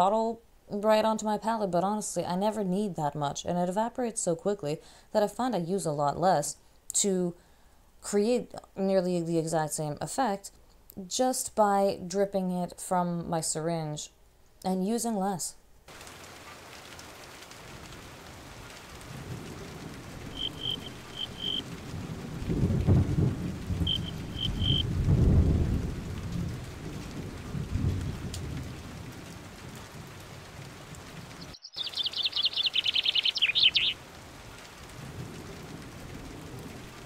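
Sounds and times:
rain falling: 15.8s - 37.0s
low thunder rumble: 17.7s - 31.4s
bird chirping: 20.3s - 21.6s, 23.9s - 24.8s, 31.4s - 34.0s
rapid high bird trill: 20.3s - 21.6s, 23.9s - 24.8s, 31.6s - 34.0s.

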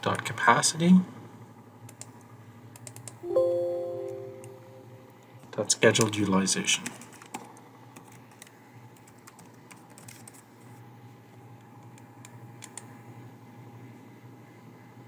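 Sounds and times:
low steady hum: 1.0s - 5.6s
computer keyboard typing: 8.0s - 10.4s.

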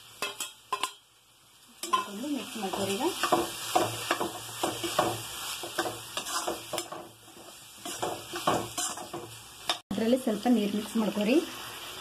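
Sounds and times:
oil sizzling: 0.0s - 12.0s
spoon scraping a pan: 0.2s - 1.0s, 1.8s - 9.8s.

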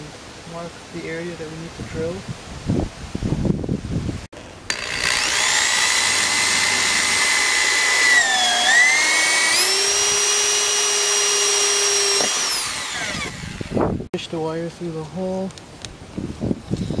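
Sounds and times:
electric drill whining: 4.4s - 14.0s.

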